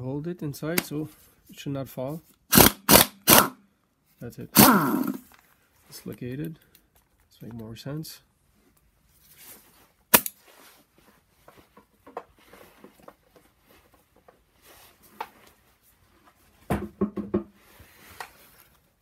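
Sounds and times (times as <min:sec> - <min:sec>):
knocks: 0:16.7 - 0:17.5.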